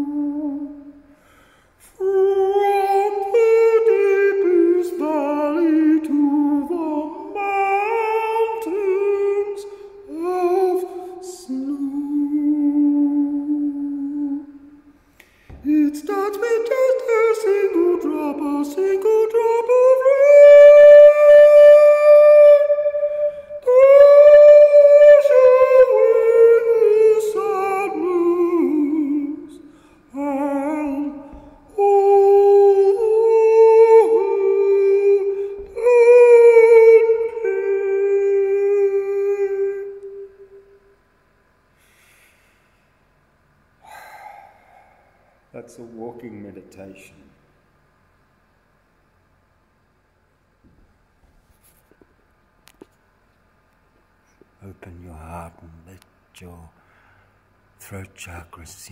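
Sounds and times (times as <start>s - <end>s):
man humming melody: 0.0s - 1.0s, 15.6s - 40.8s.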